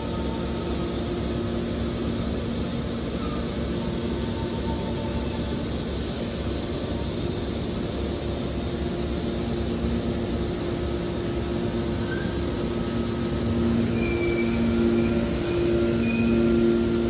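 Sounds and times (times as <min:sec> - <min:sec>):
hydraulic baler humming: 0:10.1 - 0:17.0
brief high squeaks: 0:13.8 - 0:15.3.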